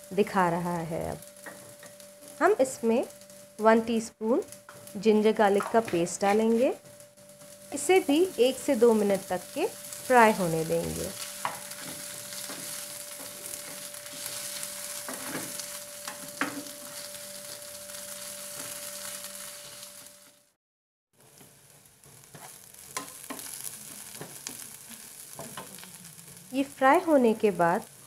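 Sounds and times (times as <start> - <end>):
onions sizzling in oil: 0.0 - 20.6, 21.2 - 28.0
wooden spatula scraping pan: 11.1 - 17.6, 22.2 - 24.6.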